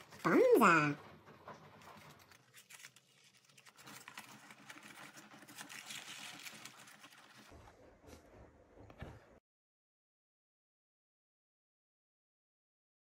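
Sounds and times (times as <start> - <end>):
paper rustling and crinkling: 0.0 - 0.7, 1.5 - 7.6.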